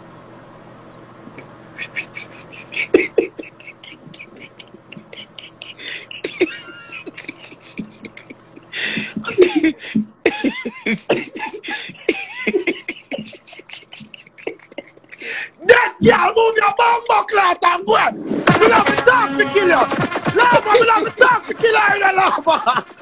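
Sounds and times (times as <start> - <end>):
man beatboxing: 1.4 - 9.4, 13.1 - 15.0, 18.5 - 23.0.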